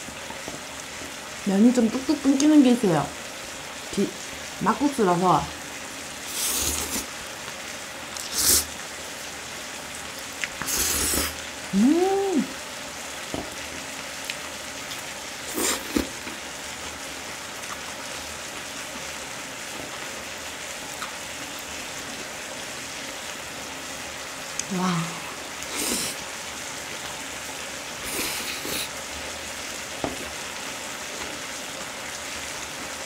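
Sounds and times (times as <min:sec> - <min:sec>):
meat sizzling on grill pan: 0:00.0 - 0:33.0
noodles slurped: 0:06.3 - 0:07.1, 0:08.2 - 0:08.7, 0:10.5 - 0:11.4, 0:15.5 - 0:16.2, 0:25.7 - 0:26.2
person humming: 0:10.7 - 0:12.6, 0:24.6 - 0:26.2.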